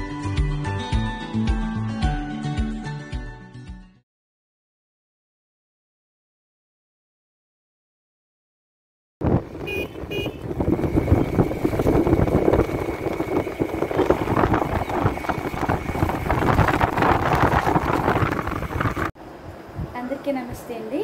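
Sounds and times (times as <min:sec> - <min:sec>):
vehicle engine and road noise: 0:09.2 - 0:21.0
short horn toots: 0:09.6 - 0:10.5.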